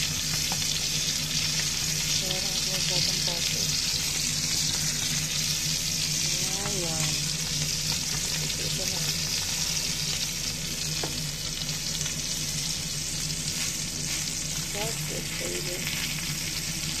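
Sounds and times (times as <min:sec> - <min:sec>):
steak sizzling in a frying pan: 0:00.0 - 0:17.0
wooden spoon stirring in pan: 0:06.2 - 0:10.2.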